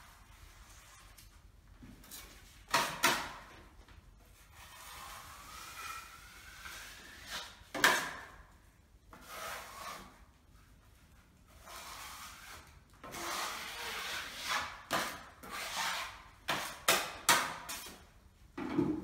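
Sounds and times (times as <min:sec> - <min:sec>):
filling knife scraping wall: 0:04.4 - 0:07.7.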